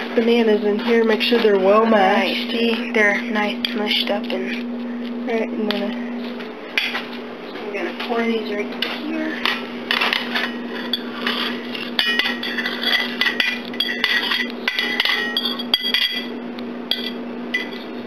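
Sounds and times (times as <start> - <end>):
utensil scraping ceramic plate: 8.9 - 16.3.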